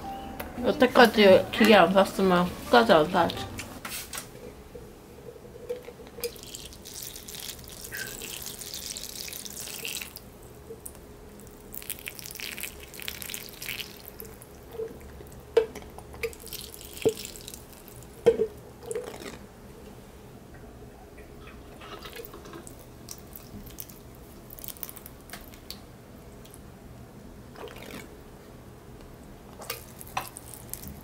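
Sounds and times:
water drips and splashes: 6.2s - 10.2s.

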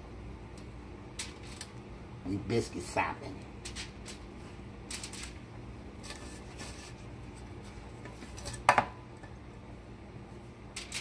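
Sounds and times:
aluminium foil crinkling: 1.1s - 1.8s, 3.4s - 8.7s, 10.7s - 11.0s.

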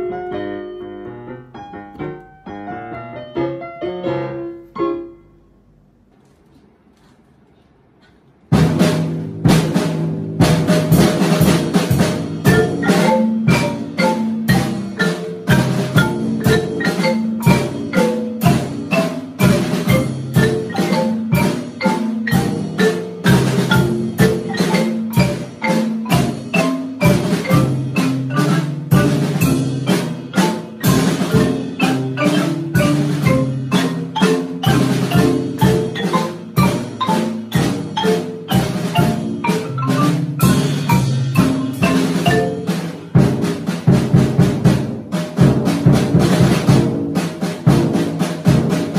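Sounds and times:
marimbas and vibraphone playing: 8.5s - 44.7s.

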